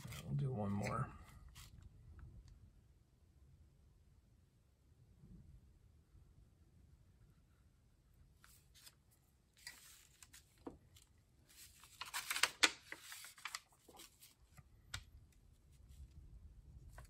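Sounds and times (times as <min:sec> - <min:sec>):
paper rustling: 0:00.0 - 0:01.8, 0:08.4 - 0:16.2, 0:16.8 - 0:17.0.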